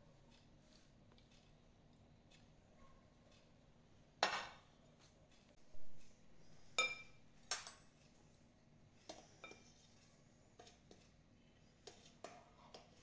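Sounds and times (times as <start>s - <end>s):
metal spoon clinking on glass bowls: 6.8s - 7.9s, 9.1s - 9.9s.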